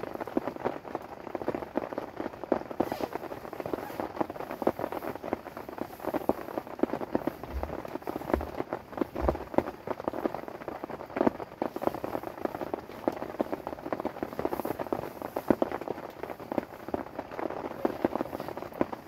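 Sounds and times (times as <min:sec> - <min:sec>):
rain pattering on a tent: 0:00.0 - 0:19.0
sleeping bag rustling: 0:02.7 - 0:09.7.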